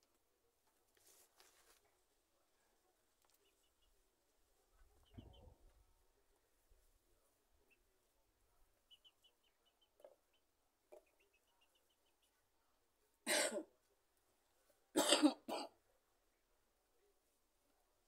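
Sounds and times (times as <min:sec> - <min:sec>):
woman coughing: 0:13.2 - 0:13.7, 0:15.0 - 0:15.8.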